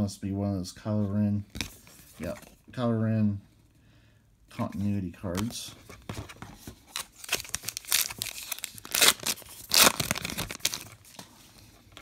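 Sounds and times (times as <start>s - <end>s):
wrapper rustling: 6.6s - 12.0s
wrapper ripping and crinkling: 6.9s - 11.2s.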